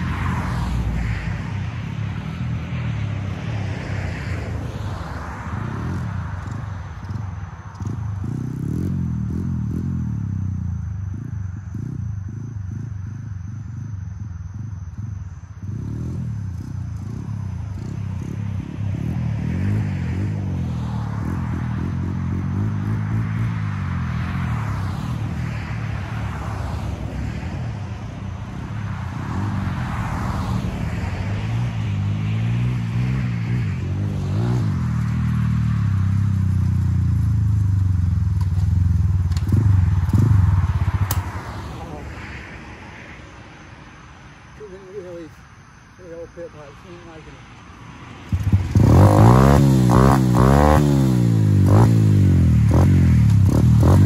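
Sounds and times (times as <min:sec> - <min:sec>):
cars passing: 0:00.0 - 0:54.0
small motorcycle engine revving: 0:05.6 - 0:26.8, 0:29.4 - 0:42.1, 0:48.3 - 0:54.0.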